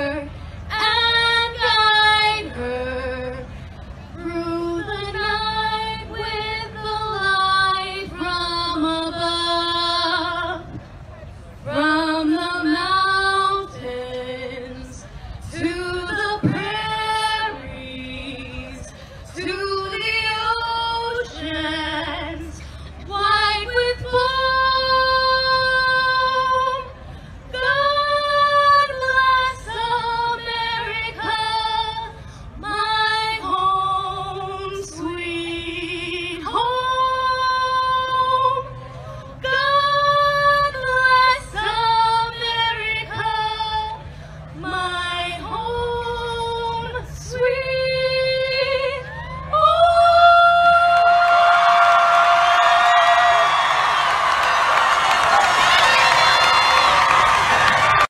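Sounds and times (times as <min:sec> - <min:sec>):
woman singing unaccompanied: 0:04.2 - 0:10.6, 0:11.7 - 0:26.9, 0:27.5 - 0:38.8, 0:39.4 - 0:44.0, 0:44.6 - 0:51.5.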